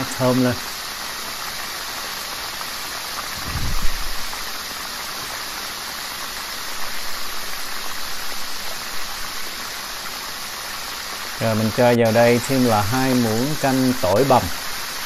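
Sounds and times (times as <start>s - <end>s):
food sizzling in hot oil: 0.0s - 15.0s
dull low thump: 3.4s - 4.4s.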